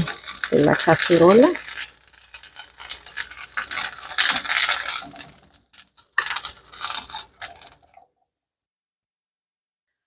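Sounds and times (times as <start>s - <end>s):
metal tongs scraping frying pan: 0.0s - 8.0s.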